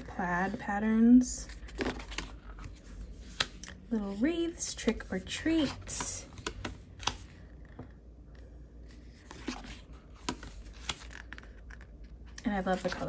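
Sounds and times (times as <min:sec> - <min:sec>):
paper pages rustling: 0:08.8 - 0:13.0.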